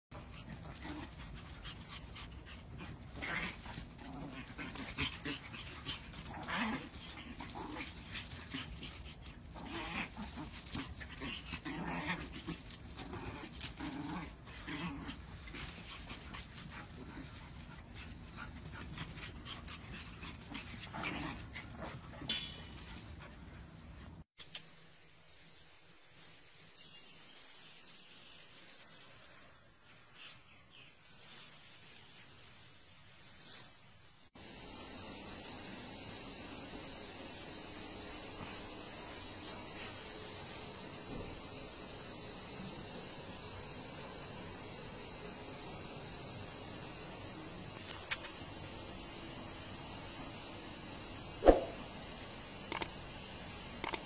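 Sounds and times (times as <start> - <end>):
small dogs play-fighting: 0.1 - 24.2.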